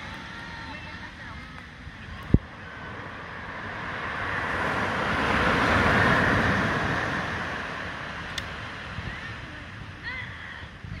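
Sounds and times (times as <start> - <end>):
wave breaking on beach: 0.0 - 11.0
faint click: 8.3 - 8.5.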